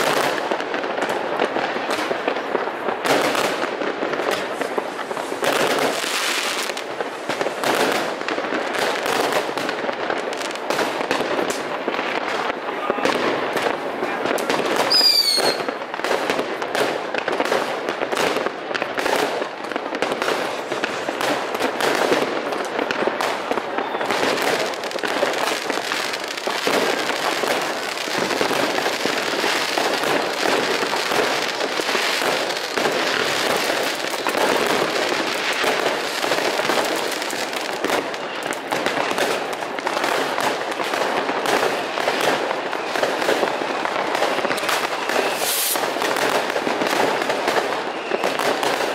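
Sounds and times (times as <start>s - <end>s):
fireworks bangs and crackling: 0.0s - 48.9s
falling rocket whistle: 14.9s - 15.7s, 44.9s - 45.8s.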